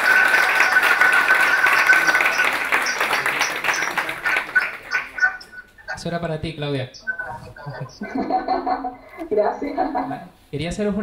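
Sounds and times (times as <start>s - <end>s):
audience applauding: 0.0s - 5.6s
steady high tone: 0.0s - 6.2s.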